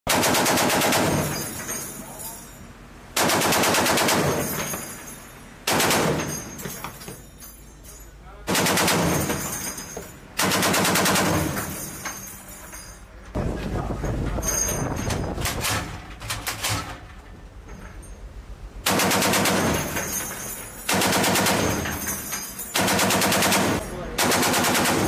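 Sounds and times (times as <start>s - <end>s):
machine gun firing bursts: 0.1s - 1.4s, 3.2s - 4.6s, 5.7s - 6.3s, 8.5s - 9.4s, 10.4s - 11.6s, 18.9s - 20.0s, 20.9s - 21.9s, 22.8s - 25.0s.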